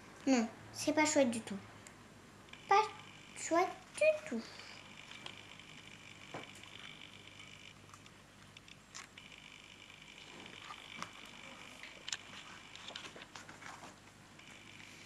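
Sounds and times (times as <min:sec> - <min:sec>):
faint high hum: 0:00.0 - 0:15.0
book rustling and clicking: 0:10.2 - 0:14.2.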